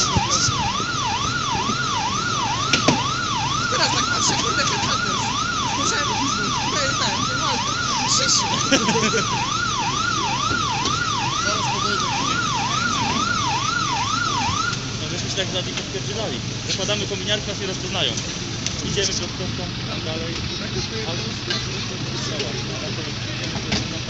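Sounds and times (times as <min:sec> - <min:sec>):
siren yelping: 0:00.0 - 0:16.3.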